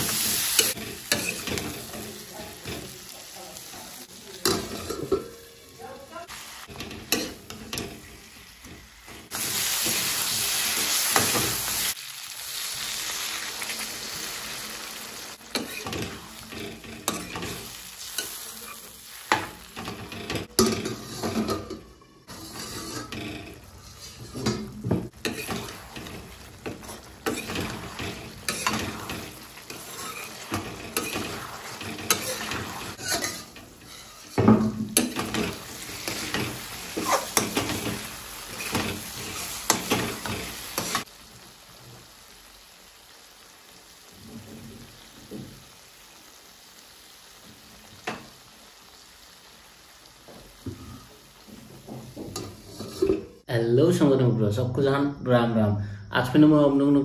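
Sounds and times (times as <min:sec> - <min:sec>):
gravy sizzling: 0:00.0 - 0:53.5
ladle scraping and clinking on pan: 0:00.1 - 0:02.9, 0:06.7 - 0:08.1, 0:15.5 - 0:41.1, 0:52.2 - 0:53.4.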